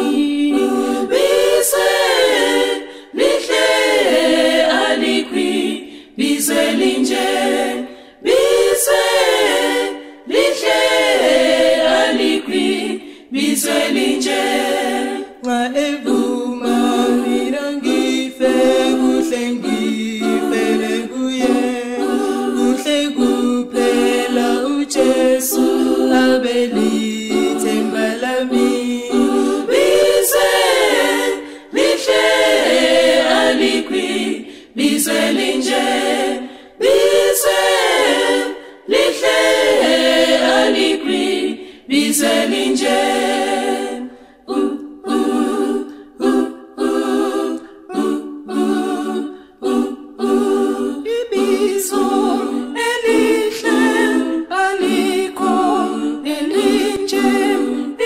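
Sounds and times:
vocal group singing hymn: 0.0 - 58.0.

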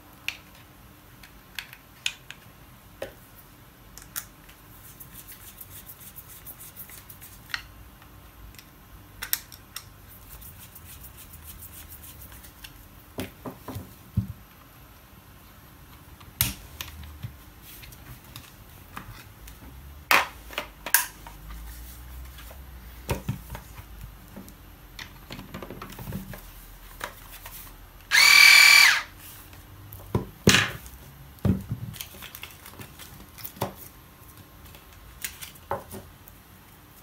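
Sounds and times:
small parts clicking and knocking: 0.2 - 3.1, 8.5 - 10.0
small electric motor whirring: 28.1 - 29.1.

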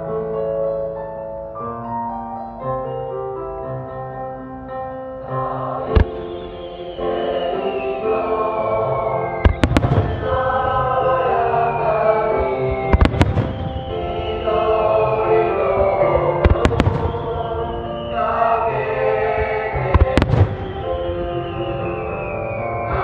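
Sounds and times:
music: 0.0 - 23.0
fireworks bursting: 5.8 - 23.0.

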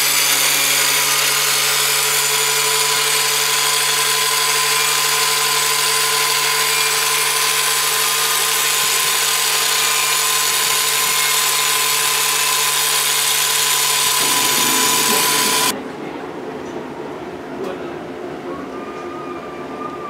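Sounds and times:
angle grinder cutting steel: 0.0 - 15.7.

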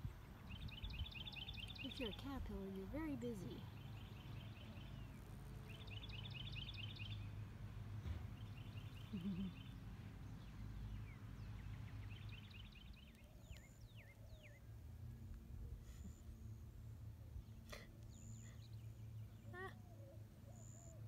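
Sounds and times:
songbird trilling: 0.5 - 2.4, 5.7 - 7.3, 8.6 - 9.8.

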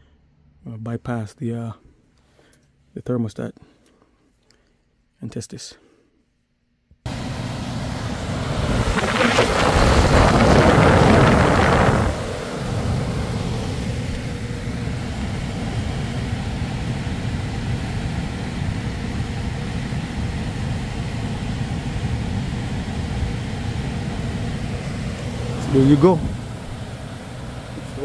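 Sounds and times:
faint steady hum: 0.0 - 28.0
furnace blower rush of air: 7.1 - 28.0.

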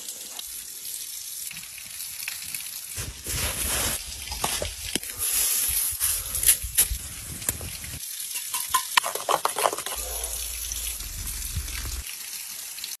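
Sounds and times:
metal spoon clinking on pot: 8.4 - 10.0.

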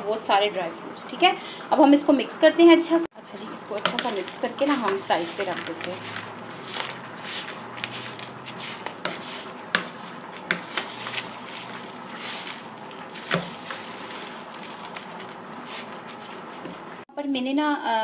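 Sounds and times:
spoon scraping in bowl: 3.3 - 16.7.

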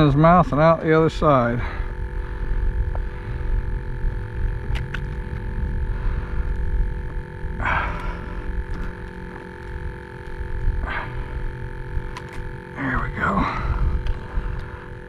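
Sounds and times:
constant electrical hum: 0.0 - 15.0
wind noise on microphone: 13.5 - 15.0.

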